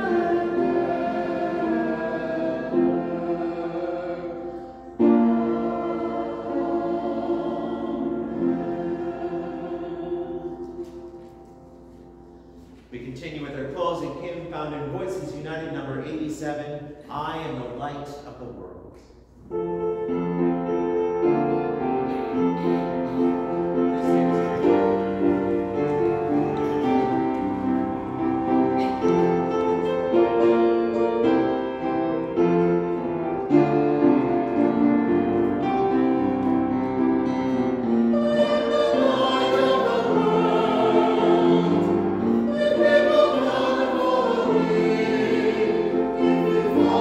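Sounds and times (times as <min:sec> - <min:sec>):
people singing: 0:00.0 - 0:11.2, 0:37.5 - 0:47.0.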